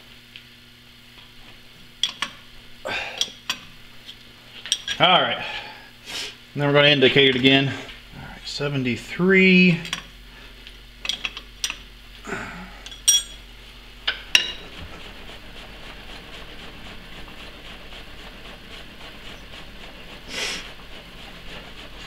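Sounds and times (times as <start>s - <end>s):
metal parts clinking and knocking: 11.0s - 11.8s, 12.9s - 13.4s.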